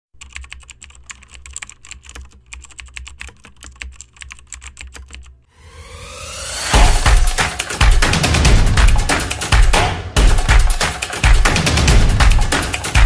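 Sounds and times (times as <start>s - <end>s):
rising swell: 5.5s - 7.8s.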